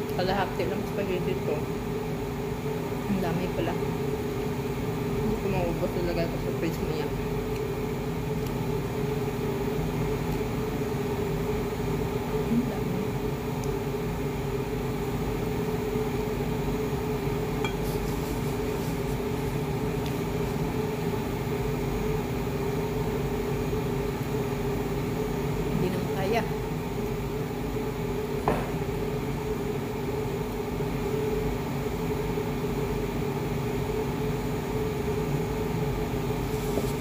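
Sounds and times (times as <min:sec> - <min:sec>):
appliance humming: 0:00.0 - 0:37.0
fork clinking on ceramic bowl: 0:17.6 - 0:18.0.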